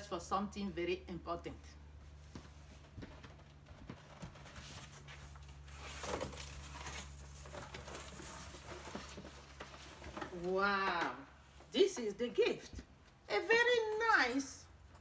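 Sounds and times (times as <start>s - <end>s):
cardboard rustling and scraping: 2.4s - 10.6s.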